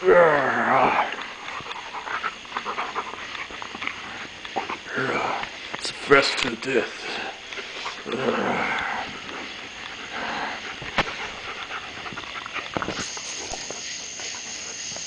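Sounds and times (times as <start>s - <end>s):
dogs play-wrestling noises: 0.1s - 15.0s.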